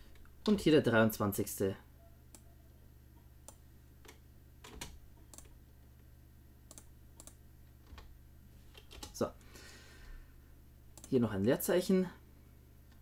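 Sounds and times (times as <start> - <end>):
low steady hum: 0.0 - 13.0
mouse clicks: 6.7 - 7.4.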